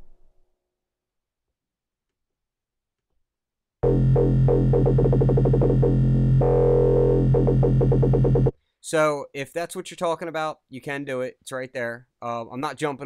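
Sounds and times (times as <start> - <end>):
dubstep wobble bass: 3.8 - 8.5.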